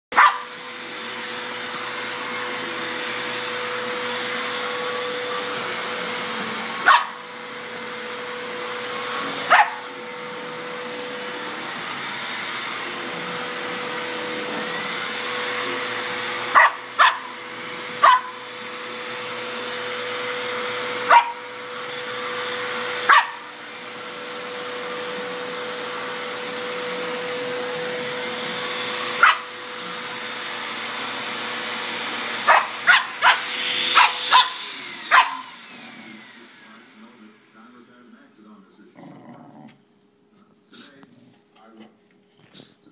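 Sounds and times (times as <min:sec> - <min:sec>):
puppy barking: 0:00.1 - 0:00.5, 0:06.8 - 0:07.2, 0:09.5 - 0:09.9, 0:16.6 - 0:17.4, 0:18.0 - 0:18.4, 0:21.1 - 0:21.4, 0:23.1 - 0:23.4, 0:29.2 - 0:29.5, 0:32.5 - 0:35.5
vacuum cleaner running: 0:00.1 - 0:39.7.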